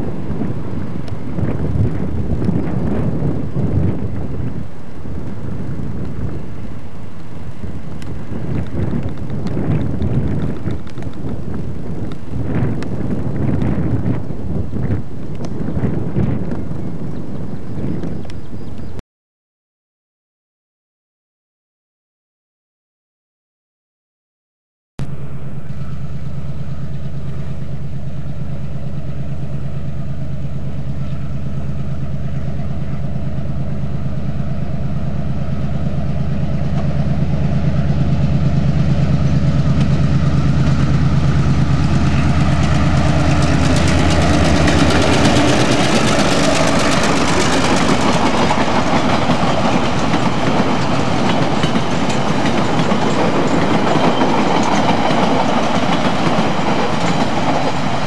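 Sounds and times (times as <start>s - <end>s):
diesel locomotive engine drone: 0.0s - 19.0s, 25.0s - 58.0s
wheels clattering over rail joints: 39.2s - 58.0s.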